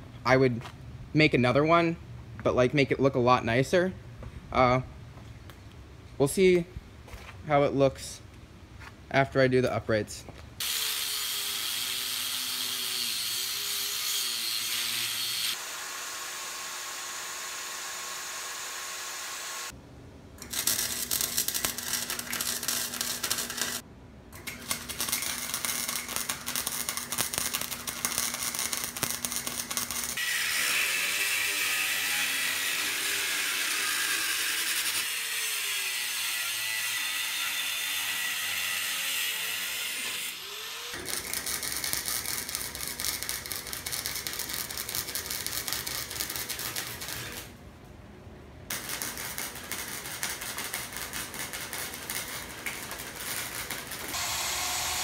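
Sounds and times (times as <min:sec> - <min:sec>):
angle grinder grinding steel: 0:10.6 - 0:19.7, 0:25.1 - 0:47.4, 0:51.7 - 0:55.0
arc welding crackle: 0:10.6 - 0:19.8, 0:20.4 - 0:23.8, 0:24.4 - 0:47.6, 0:48.7 - 0:55.0
power tool running: 0:10.6 - 0:19.8, 0:54.1 - 0:55.0.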